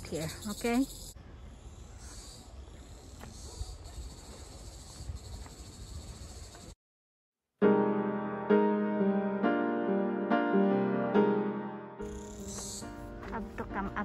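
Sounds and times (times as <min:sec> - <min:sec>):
insects shrilling: 0:00.0 - 0:06.5, 0:12.0 - 0:13.1
footsteps on dirt path: 0:12.0 - 0:14.0.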